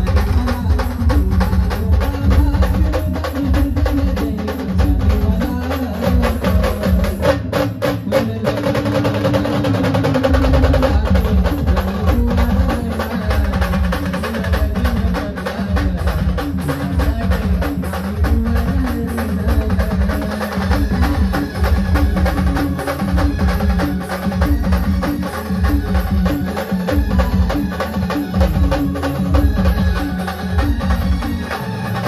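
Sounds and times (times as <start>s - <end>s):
band playing a song: 0.0s - 32.0s
busy percussion: 0.0s - 32.0s
heavy drum beats: 0.0s - 32.0s.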